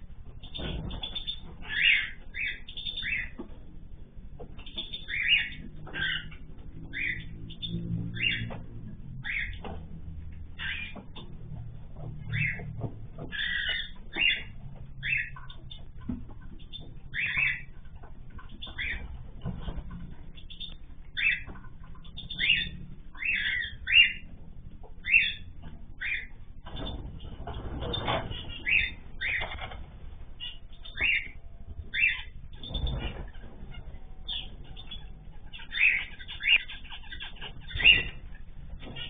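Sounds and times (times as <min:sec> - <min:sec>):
birds chirping: 0:00.0 - 0:39.0
wings flapping: 0:32.0 - 0:35.1.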